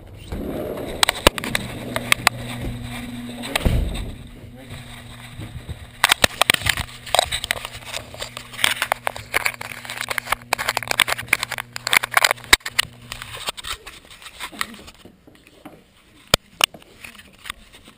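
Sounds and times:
steady low hum: 0:00.0 - 0:15.0
camera housing scraping and knocking: 0:04.8 - 0:15.0.

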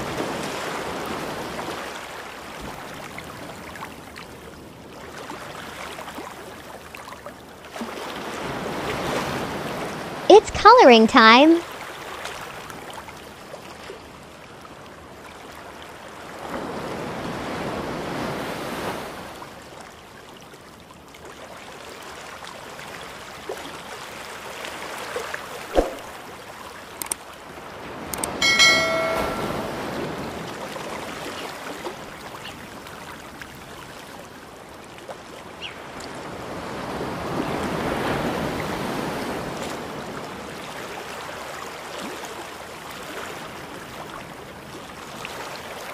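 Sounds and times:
ocean waves washing: 0:27.6 - 0:32.1
short ringing tone: 0:28.4 - 0:30.2.

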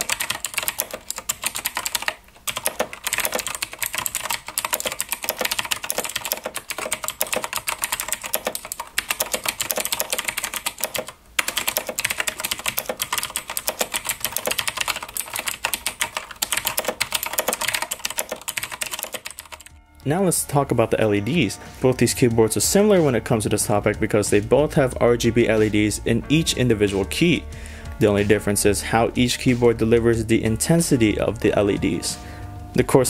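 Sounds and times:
mechanical keyboard typing: 0:00.0 - 0:19.7.

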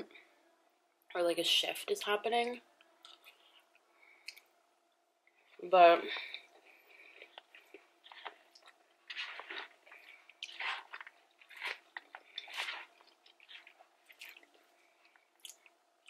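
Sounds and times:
chewing and crunching food: 0:05.4 - 0:16.0.

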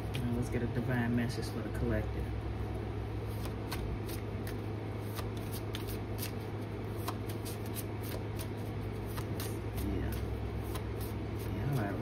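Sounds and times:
steady low hum: 0:00.0 - 0:12.0
cards being shuffled: 0:03.3 - 0:12.0.

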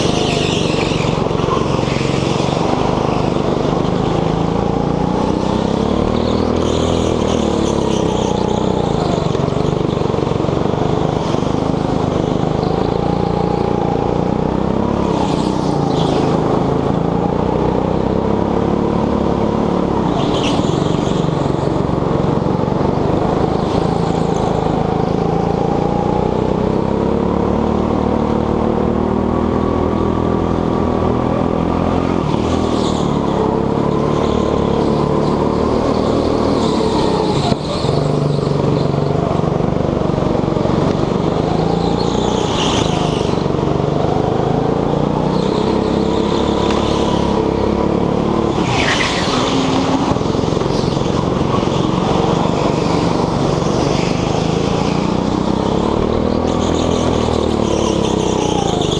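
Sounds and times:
tyre squeals: 0:00.0 - 0:04.4, 0:48.4 - 0:58.9
go-kart engine: 0:00.0 - 0:58.9.

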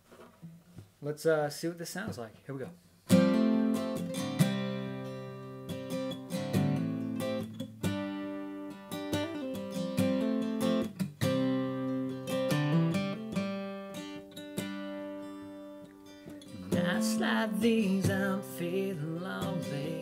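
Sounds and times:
acoustic guitar chords: 0:03.1 - 0:20.0.

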